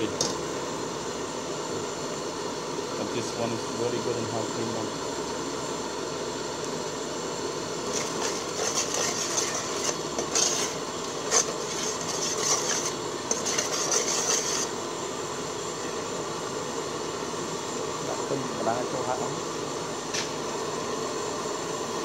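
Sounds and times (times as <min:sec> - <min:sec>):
steady hiss: 0:00.0 - 0:22.0
metal spoon scraping a pot: 0:07.9 - 0:14.7.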